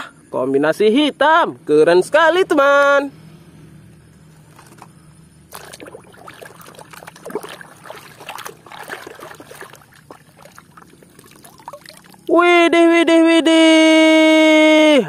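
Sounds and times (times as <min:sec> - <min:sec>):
water sloshing and splashing: 0:05.5 - 0:12.3
water trickling and dripping: 0:05.5 - 0:12.3.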